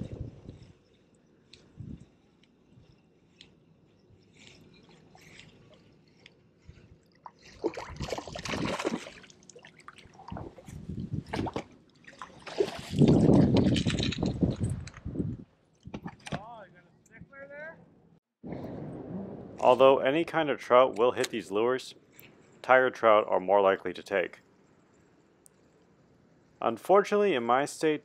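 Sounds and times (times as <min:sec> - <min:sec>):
fish splashing in water: 0:07.2 - 0:10.7, 0:11.3 - 0:13.3.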